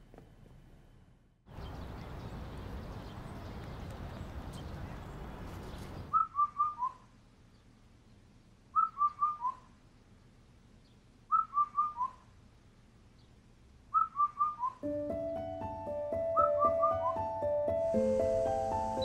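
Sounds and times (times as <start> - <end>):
steady outdoor hiss: 0.0 - 6.2, 7.0 - 14.0, 14.8 - 19.0
whistled bird-like alarm chirps: 6.1 - 7.0, 8.8 - 9.7, 11.3 - 12.2, 13.9 - 14.8, 16.4 - 17.3.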